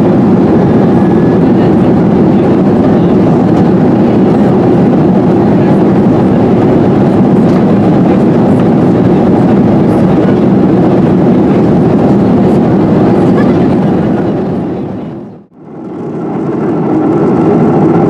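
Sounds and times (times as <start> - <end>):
airplane cabin engine roar: 0.0 - 18.0.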